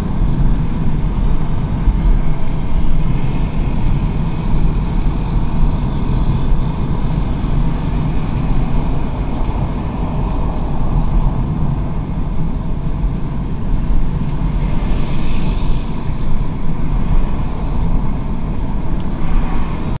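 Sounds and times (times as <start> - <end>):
car engine and tyre rumble: 0.0 - 20.0
hiss: 14.6 - 18.1.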